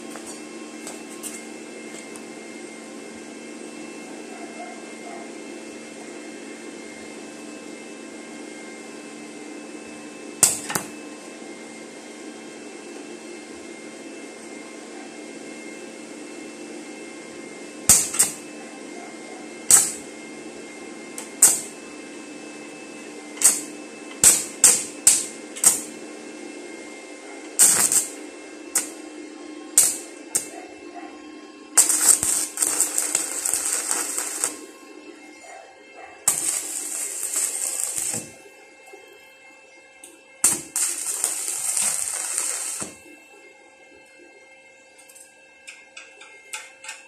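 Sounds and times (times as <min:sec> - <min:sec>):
electrical hum: 0:00.0 - 0:47.0
welding arc crackling: 0:10.4 - 0:10.9, 0:17.8 - 0:18.4, 0:19.6 - 0:20.2, 0:21.2 - 0:21.8, 0:23.3 - 0:26.0, 0:27.6 - 0:29.0, 0:29.7 - 0:30.6, 0:31.7 - 0:35.4, 0:36.2 - 0:38.5, 0:40.4 - 0:43.1.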